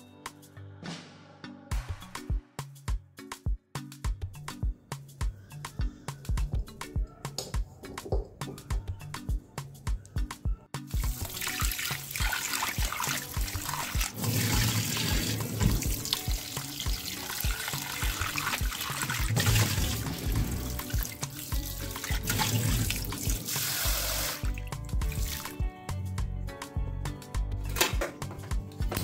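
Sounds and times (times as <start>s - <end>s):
background music with steady beat: 0.0s - 29.0s.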